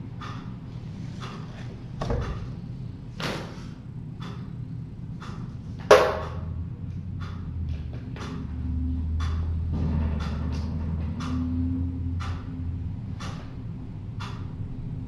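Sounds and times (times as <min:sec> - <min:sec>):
steady low hum: 0:00.0 - 0:15.0
knocks and thumps: 0:02.0 - 0:02.5.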